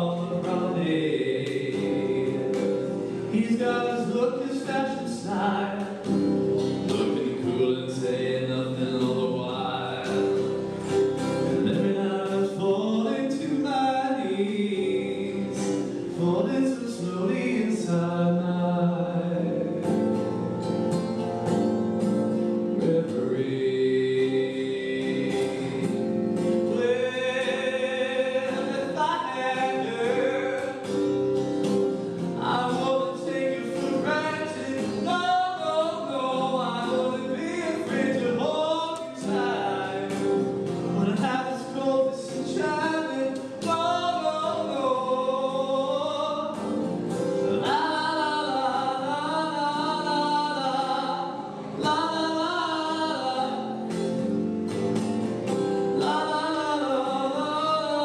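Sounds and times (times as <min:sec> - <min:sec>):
electric guitar melody: 0:00.0 - 0:58.0.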